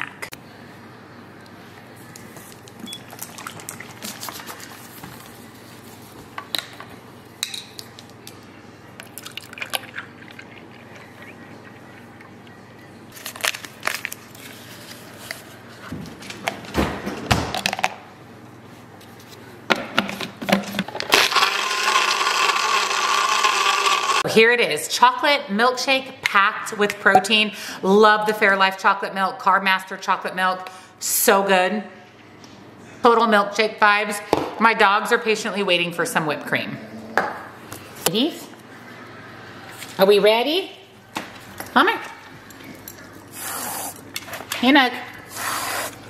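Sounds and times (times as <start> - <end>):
blender whirring: 21.0 - 24.3.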